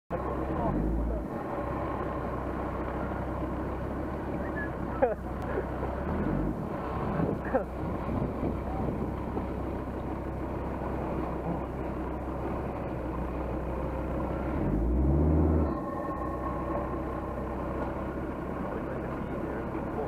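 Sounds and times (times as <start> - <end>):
engine revving: 0.1 - 8.6, 10.2 - 20.0
off-road engine running: 0.1 - 20.0
faint steady whine: 15.6 - 20.0.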